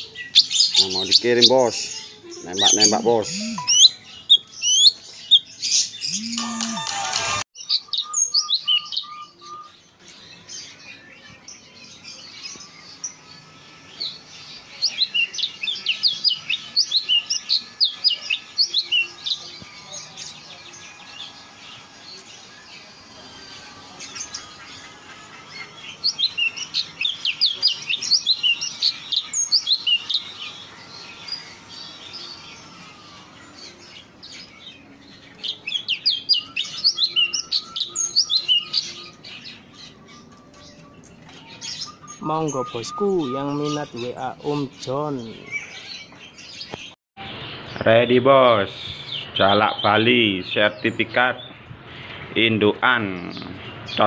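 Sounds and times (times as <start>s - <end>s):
soft bird calls: 0.0s - 6.8s
songbird chirping and trilling: 0.0s - 54.0s.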